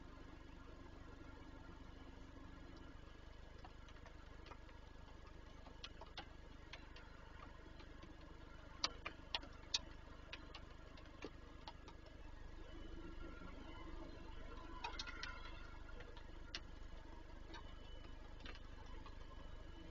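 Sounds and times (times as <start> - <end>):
faint low hum: 0.0 - 19.9
raindrops ticking on wood box: 2.7 - 12.2, 14.2 - 19.8.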